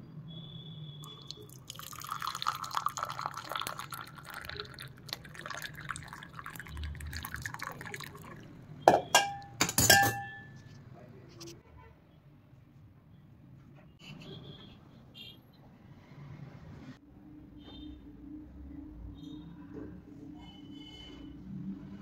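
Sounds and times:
tea pouring into cup: 0:01.0 - 0:09.0.

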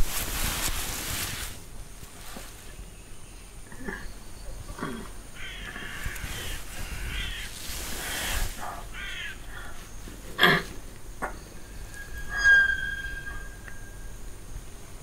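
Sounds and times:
crow cawing: 0:05.4 - 0:07.5, 0:08.9 - 0:09.8.

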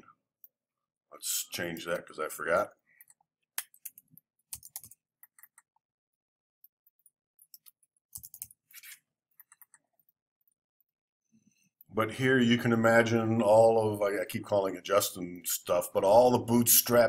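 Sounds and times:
computer keyboard typing: 0:03.0 - 0:05.7, 0:06.8 - 0:08.7, 0:09.3 - 0:10.5.

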